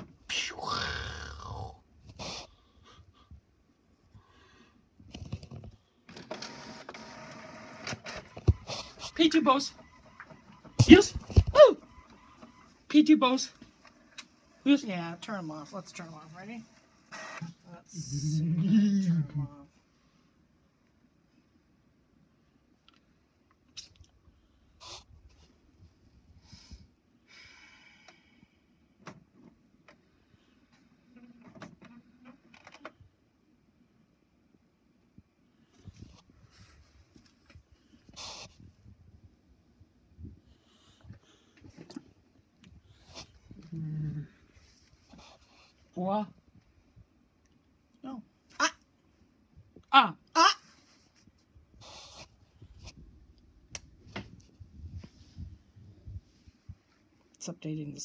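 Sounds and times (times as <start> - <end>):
steady printer noise: 6.1 - 12.8.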